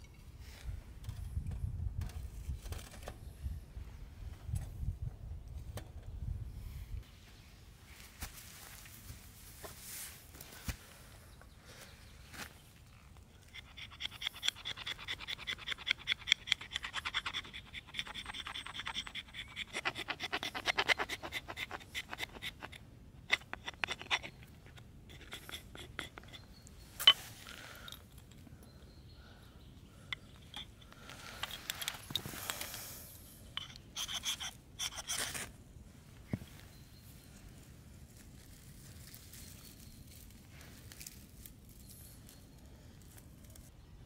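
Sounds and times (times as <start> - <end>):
blade scraping wood: 13.5 - 27.2, 33.5 - 35.5.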